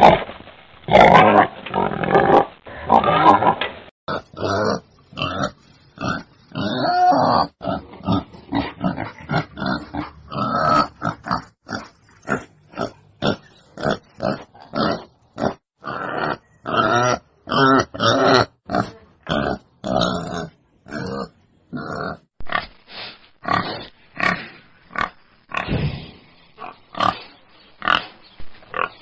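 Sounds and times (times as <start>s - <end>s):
wild boar grunting: 0.9s - 22.7s.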